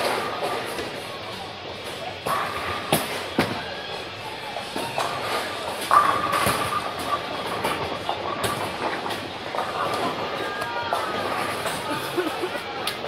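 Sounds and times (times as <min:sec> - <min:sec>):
bowling ball rolling: 0:00.0 - 0:11.8
ball crashing into pins: 0:05.8 - 0:09.1.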